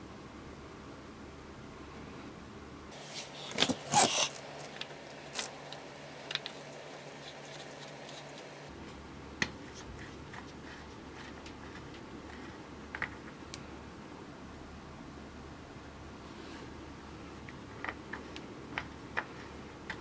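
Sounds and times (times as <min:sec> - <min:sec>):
scraping and rustling: 0:02.9 - 0:08.7.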